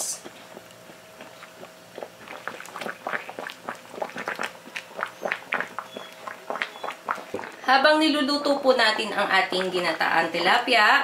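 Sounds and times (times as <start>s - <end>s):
faint steady hum: 0.0s - 11.0s
liquid bubbling and popping: 0.2s - 7.7s, 9.5s - 10.6s.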